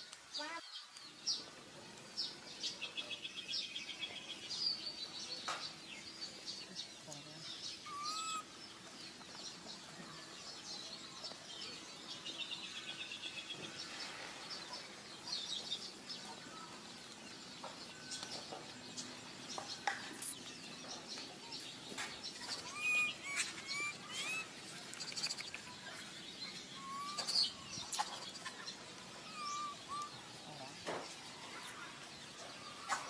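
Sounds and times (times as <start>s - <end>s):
baby monkey squeaking: 7.9s - 8.4s, 22.5s - 24.5s, 26.8s - 27.4s, 29.2s - 30.1s.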